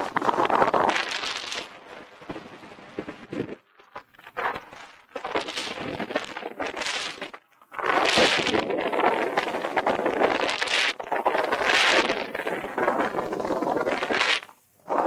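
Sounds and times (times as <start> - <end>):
snowboards scraping on snow: 7.8 - 15.0.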